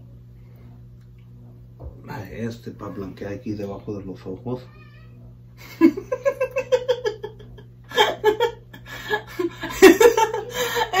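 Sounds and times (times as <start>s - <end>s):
steady low hum: 0.0s - 11.0s
woman giggling: 5.6s - 11.0s.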